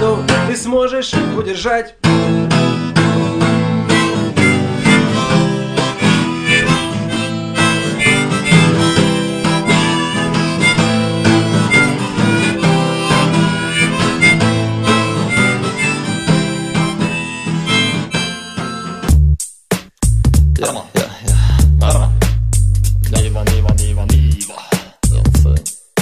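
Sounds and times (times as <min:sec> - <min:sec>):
harmonica over guitar: 0:00.0 - 0:19.3, 0:23.2 - 0:24.6.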